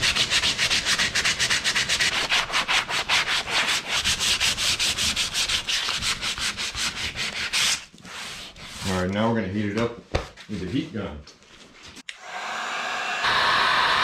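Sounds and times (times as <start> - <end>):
sandpaper rubbing on plastic: 0.0 - 9.1.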